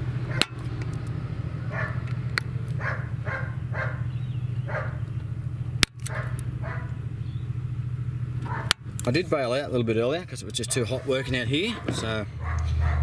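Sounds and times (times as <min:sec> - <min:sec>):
steady low hum: 0:00.0 - 0:13.0
dog barking: 0:01.7 - 0:02.0, 0:02.8 - 0:05.0, 0:06.1 - 0:07.0, 0:08.5 - 0:08.8, 0:10.6 - 0:13.0.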